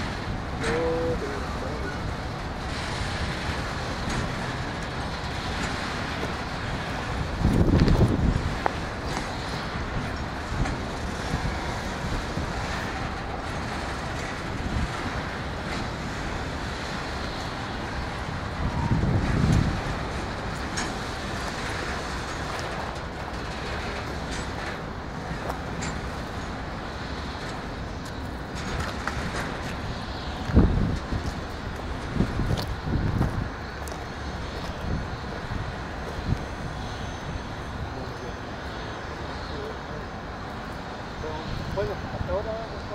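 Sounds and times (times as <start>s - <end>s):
freight train rumbling: 0.0s - 42.9s.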